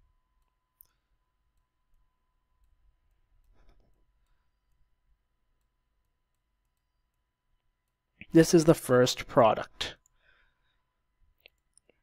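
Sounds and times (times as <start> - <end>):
faint clicks: 0.4 - 8.3.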